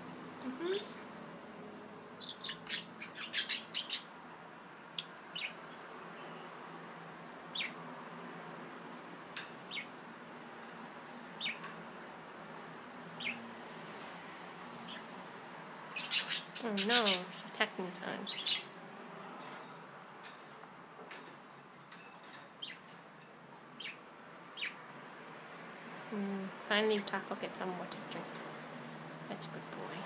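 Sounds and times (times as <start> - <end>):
budgerigars chirping: 2.2 - 4.2, 5.3 - 5.6, 7.5 - 7.8, 9.7 - 9.9, 11.4 - 11.7, 13.2 - 13.4, 15.9 - 17.5, 18.2 - 18.7, 23.8 - 24.8.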